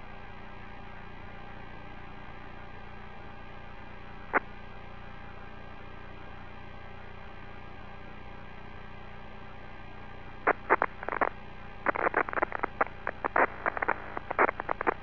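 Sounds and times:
electrical hum on radio: 0:00.0 - 0:15.0
radio crackles and clicks: 0:10.5 - 0:15.0.

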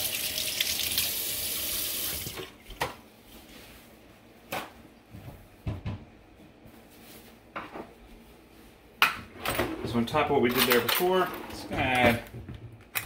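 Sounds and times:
faucet running into sink: 0:00.0 - 0:02.5.

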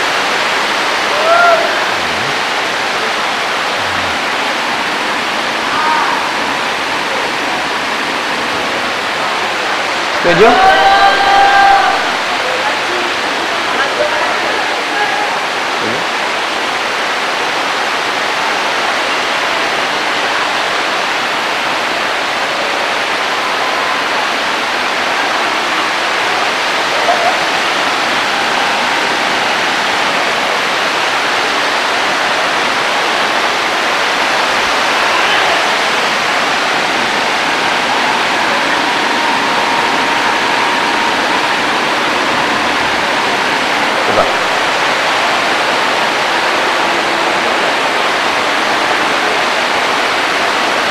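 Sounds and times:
faint man's voice: 0:01.1 - 0:04.8, 0:10.1 - 0:16.1, 0:43.9 - 0:44.9.

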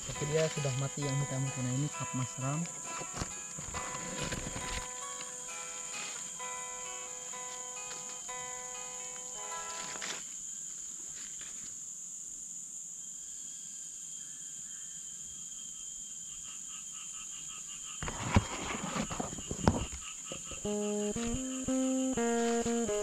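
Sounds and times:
footsteps in dry leaves: 0:00.0 - 0:02.1, 0:09.1 - 0:10.4
pulsing insect call: 0:00.0 - 0:11.2, 0:12.8 - 0:23.0
insects droning: 0:00.0 - 0:23.0.

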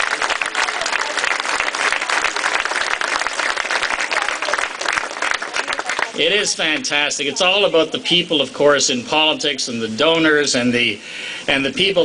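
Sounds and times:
large crowd applauding: 0:00.0 - 0:06.8.

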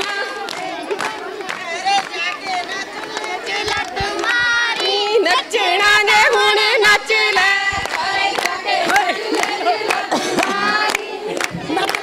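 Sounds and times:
hand claps: 0:00.0 - 0:05.0, 0:07.3 - 0:12.0
women singing together: 0:00.0 - 0:12.0.

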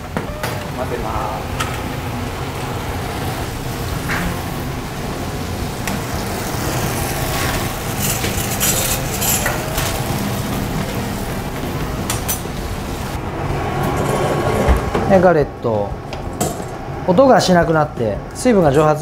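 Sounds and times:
noisy background: 0:00.0 - 0:19.0
metal spoon scraping steel bowl: 0:08.0 - 0:09.9.

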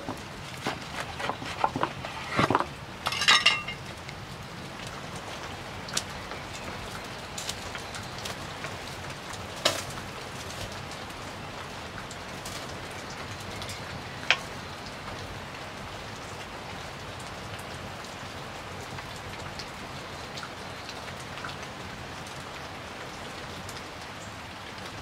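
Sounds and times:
wood fire crackling: 0:00.0 - 0:25.0
metal clinks and knocks: 0:02.2 - 0:03.9.

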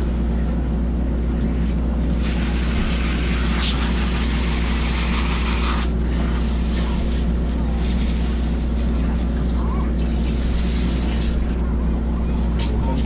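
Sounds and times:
hose water splashing: 0:02.2 - 0:11.5.

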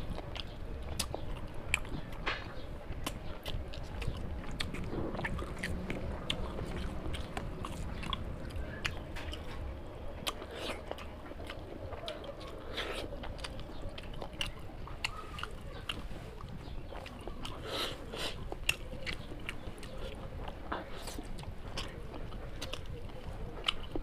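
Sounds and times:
mouth clicks and smacks: 0:00.0 - 0:09.6
person chewing food: 0:00.0 - 0:24.0.

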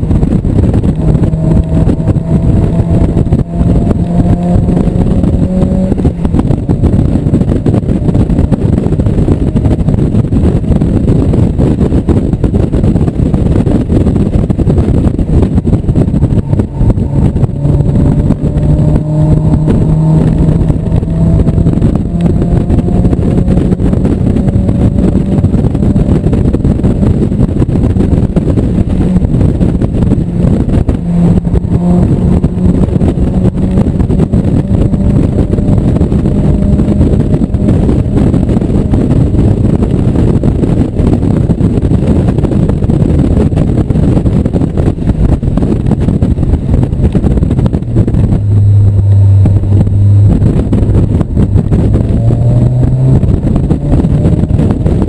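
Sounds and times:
car engine running hard: 0:00.0 - 0:55.0
road noise: 0:00.0 - 0:55.0
wind rush: 0:00.0 - 0:55.0.

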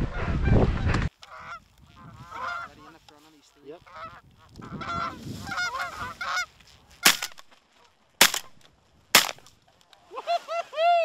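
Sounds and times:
geese honking overhead: 0:01.2 - 0:03.0, 0:03.6 - 0:06.5
shotgun shots: 0:07.0 - 0:07.4, 0:08.2 - 0:09.5.

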